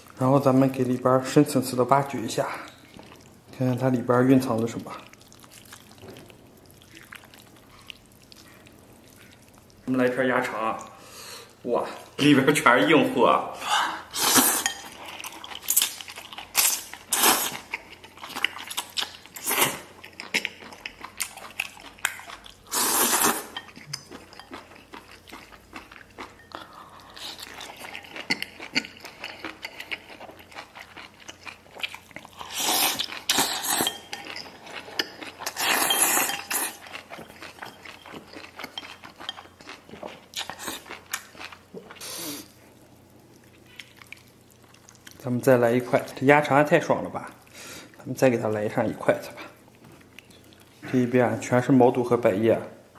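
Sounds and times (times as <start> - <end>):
person slurping and chewing: 14.0 - 42.7
chopsticks clinking on ceramic bowl: 33.4 - 40.1.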